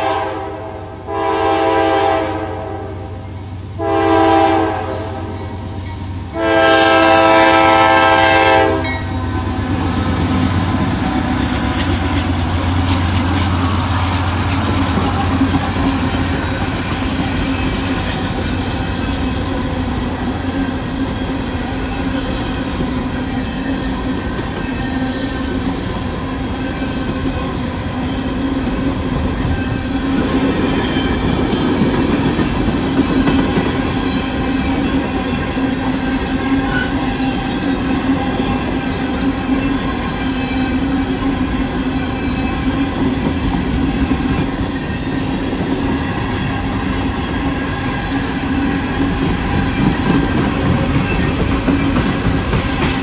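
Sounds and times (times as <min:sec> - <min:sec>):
locomotive air horn blasts: 0:00.0 - 0:03.2, 0:03.8 - 0:05.6, 0:06.3 - 0:09.1
diesel locomotives rumbling past: 0:00.0 - 0:53.0
freight cars clattering on rails: 0:09.0 - 0:53.0.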